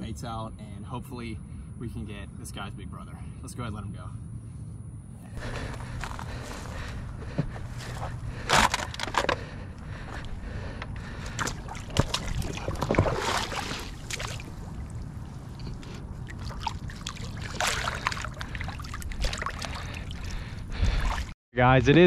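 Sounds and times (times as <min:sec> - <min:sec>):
water sloshing and splashing: 0:05.4 - 0:21.4.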